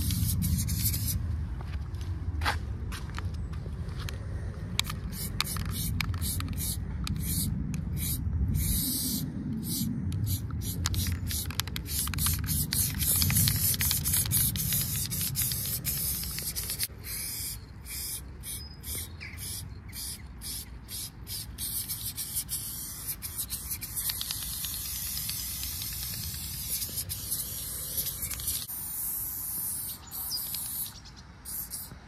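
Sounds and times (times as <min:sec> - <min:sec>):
spray paint can hissing: 0:00.0 - 0:01.2, 0:04.8 - 0:32.0
low rumble: 0:00.0 - 0:16.8.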